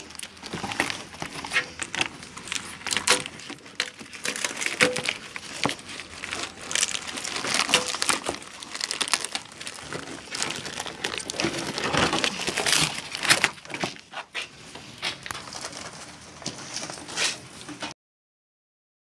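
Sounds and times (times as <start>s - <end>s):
sharp crackles: 0.0s - 13.7s
cardboard and plastic rustling: 0.0s - 18.0s.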